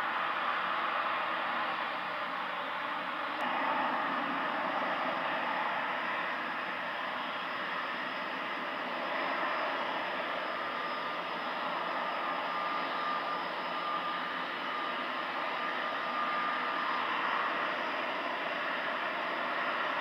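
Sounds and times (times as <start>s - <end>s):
jet engines at takeoff: 0.0s - 20.0s.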